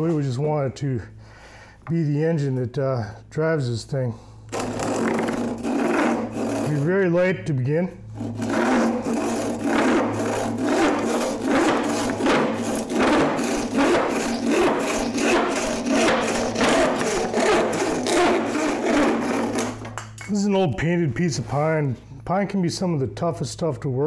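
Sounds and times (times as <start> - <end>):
hand saw rasping through wood: 4.5 - 7.1, 8.2 - 20.0.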